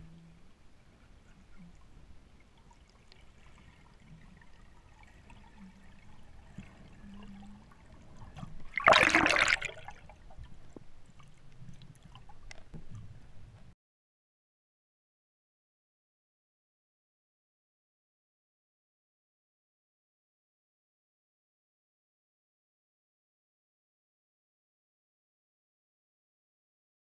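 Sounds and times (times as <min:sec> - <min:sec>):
faint underwater noise: 0:00.0 - 0:13.7
bubbling gurgling water rush: 0:08.0 - 0:10.1.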